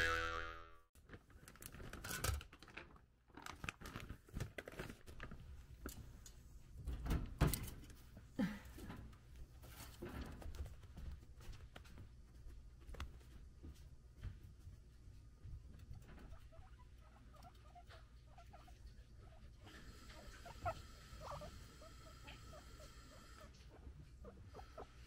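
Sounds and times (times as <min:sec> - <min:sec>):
guinea pig scrabbling in cage: 0:08.9 - 0:14.7.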